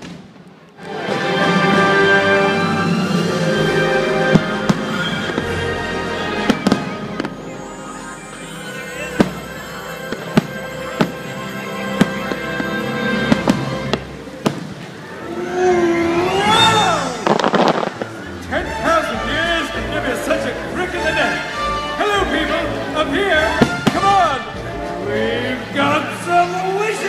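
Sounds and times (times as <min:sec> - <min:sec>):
fireworks bangs: 0:00.0 - 0:08.3, 0:08.9 - 0:19.1, 0:23.4 - 0:24.8
fireworks show music: 0:00.0 - 0:27.0.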